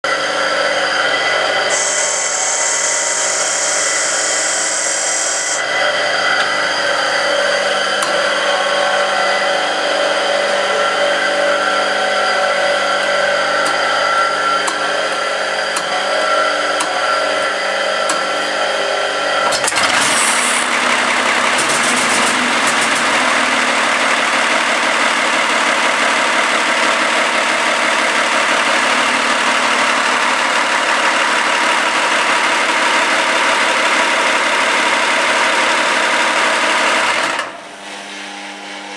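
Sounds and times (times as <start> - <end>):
starter whine: 0.0 - 38.9
diesel engine clattering: 19.4 - 37.4.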